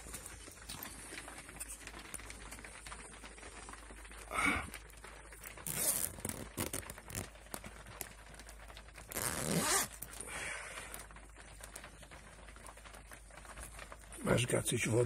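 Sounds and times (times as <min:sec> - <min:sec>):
rustling handling noises: 0:05.4 - 0:15.0.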